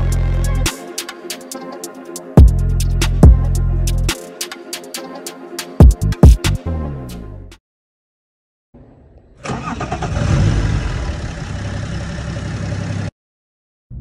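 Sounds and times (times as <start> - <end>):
diesel engine starting and idling: 8.9 - 13.1.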